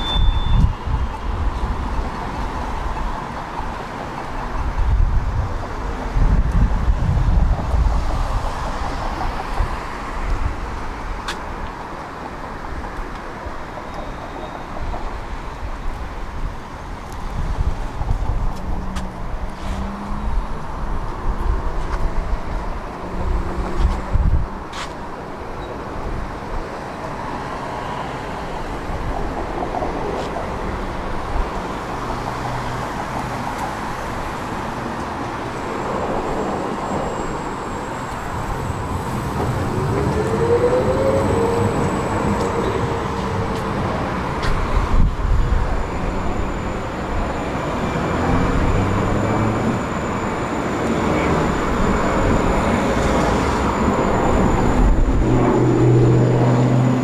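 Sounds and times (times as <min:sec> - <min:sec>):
tram rumbling on rails: 0:00.0 - 0:57.0
rising whine: 0:32.9 - 0:57.0.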